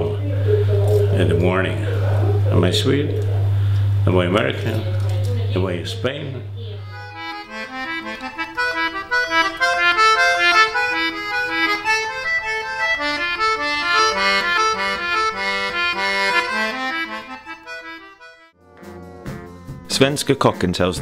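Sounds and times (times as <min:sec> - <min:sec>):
instrumental title music: 0:06.5 - 0:21.0.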